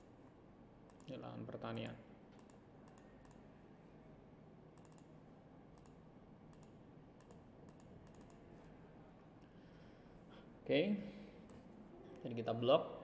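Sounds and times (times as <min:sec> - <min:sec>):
computer mouse clicks: 0:00.9 - 0:01.1, 0:02.3 - 0:03.4, 0:04.8 - 0:05.2, 0:05.8 - 0:08.4.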